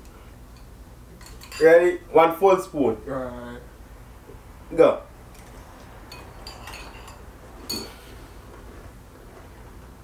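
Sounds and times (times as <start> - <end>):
spoons clinking against bowls: 0.5 - 1.8, 6.1 - 8.2.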